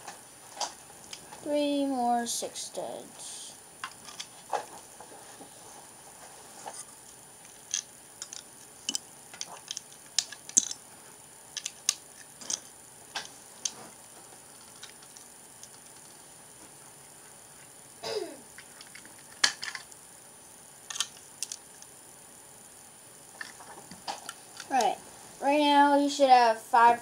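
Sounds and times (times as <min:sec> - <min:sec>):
plastic bricks clicking: 0:07.7 - 0:10.8, 0:11.6 - 0:12.7, 0:20.9 - 0:21.6.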